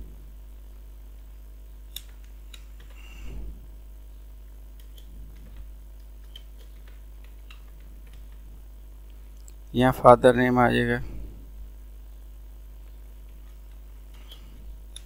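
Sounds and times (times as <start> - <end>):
low electrical hum: 0.0 - 15.0
keyboard keys clicking: 4.8 - 8.4.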